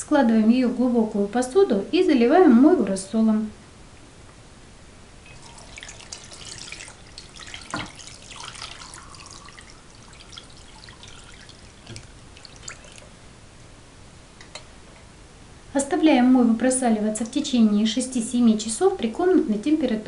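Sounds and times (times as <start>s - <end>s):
liquid splashing into bowl: 5.3s - 13.2s
water dripping: 5.3s - 13.2s, 17.2s - 17.6s.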